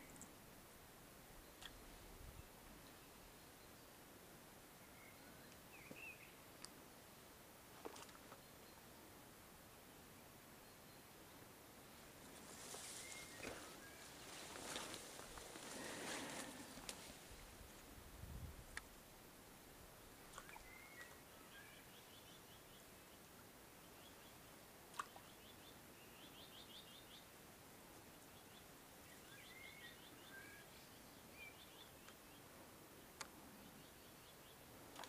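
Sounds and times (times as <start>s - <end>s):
faint songbird song: 0.0s - 35.0s.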